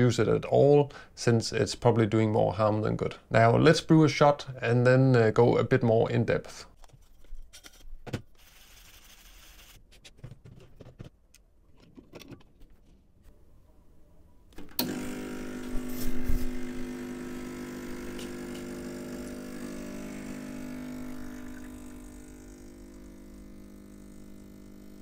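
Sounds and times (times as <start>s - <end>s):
espresso machine pump humming: 14.7s - 25.0s.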